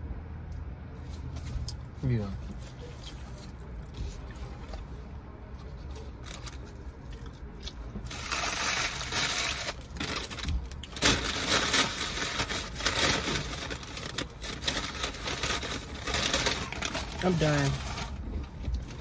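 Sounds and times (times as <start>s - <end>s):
paper wrappers rustling: 8.0s - 19.0s.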